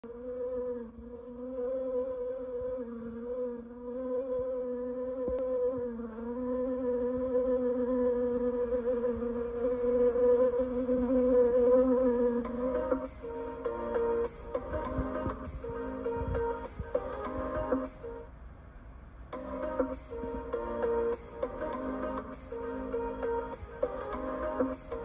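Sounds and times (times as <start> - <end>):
bee buzzing: 0.1 - 18.2.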